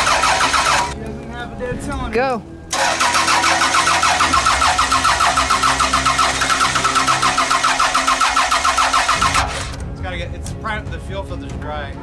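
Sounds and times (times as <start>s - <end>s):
starter motor cranking engine: 0.0s - 1.0s, 2.7s - 9.8s.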